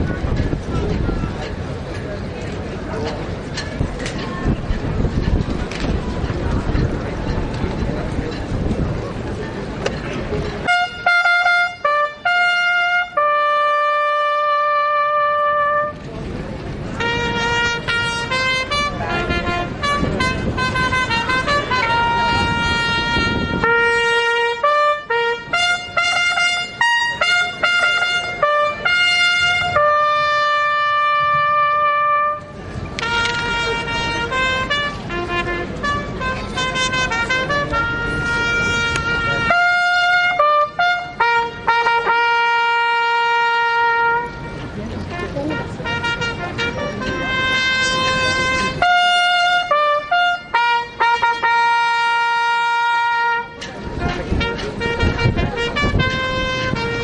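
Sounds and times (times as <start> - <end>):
solo trumpet slow melody: 10.6 - 16.1, 17.0 - 57.0.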